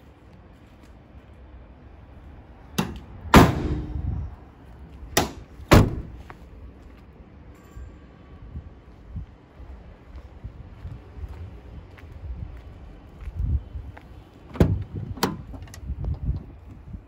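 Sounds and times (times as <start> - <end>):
van doors slamming: 2.8 - 4.1, 5.2 - 6.2, 14.5 - 15.8.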